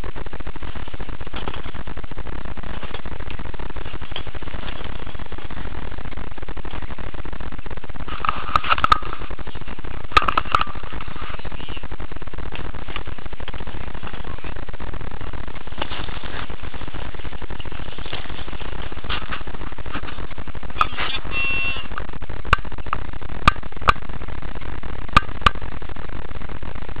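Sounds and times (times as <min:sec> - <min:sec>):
steady rushing noise: 0:00.0 - 0:27.0
short buzzing tone: 0:20.8 - 0:22.0.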